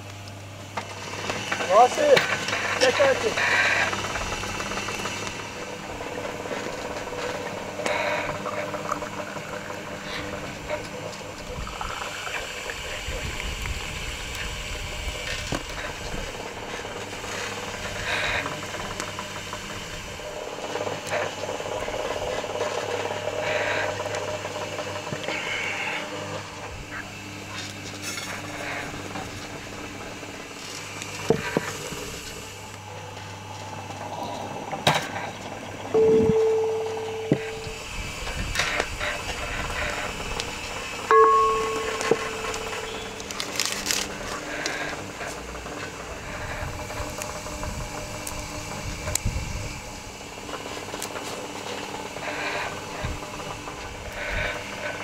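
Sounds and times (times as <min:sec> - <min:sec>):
steady low hum: 0:00.0 - 0:55.0
glasses and bowls clinking: 0:36.0 - 0:37.8, 0:41.1 - 0:43.3.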